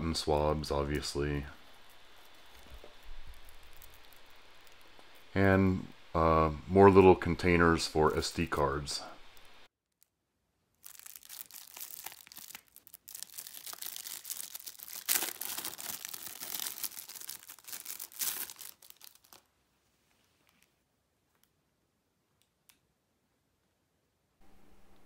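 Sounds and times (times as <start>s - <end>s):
plastic bag crinkling: 1.1s - 5.4s, 10.8s - 19.5s
plastic bag ripping: 1.8s - 5.0s, 10.8s - 19.5s.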